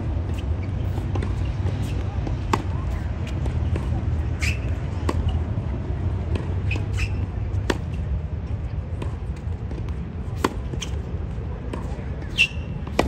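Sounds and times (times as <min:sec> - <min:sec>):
low rumble of wind: 0:00.0 - 0:13.0
tennis shoes squeaking on court: 0:00.1 - 0:05.5, 0:06.3 - 0:08.1, 0:10.3 - 0:11.1, 0:11.7 - 0:13.0
tennis balls struck by rackets: 0:00.3 - 0:08.2, 0:08.9 - 0:13.0.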